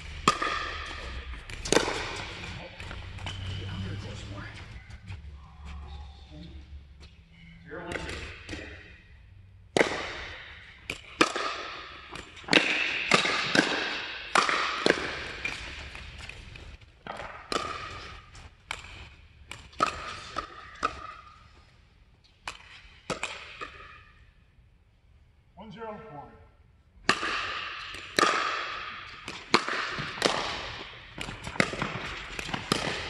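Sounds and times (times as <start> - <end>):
paddles hitting plastic ball: 0.1 - 3.3, 9.7 - 21.4, 22.4 - 24.0, 27.0 - 33.0.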